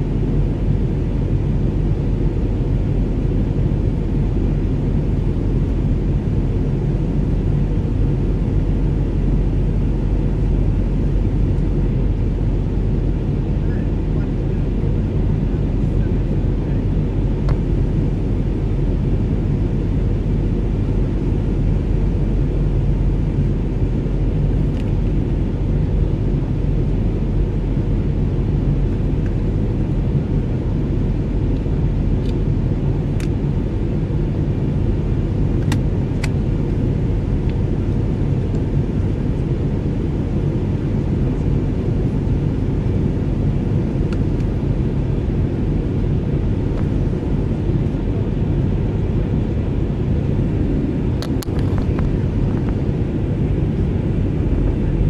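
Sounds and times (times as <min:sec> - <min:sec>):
airplane cabin rumble: 0:00.0 - 0:55.0.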